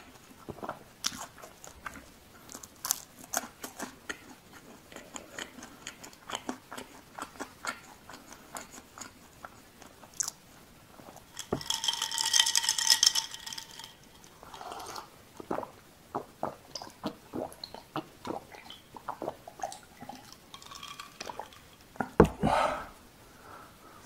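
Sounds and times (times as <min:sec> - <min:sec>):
ice cubes clinking in glass: 0:11.4 - 0:14.8.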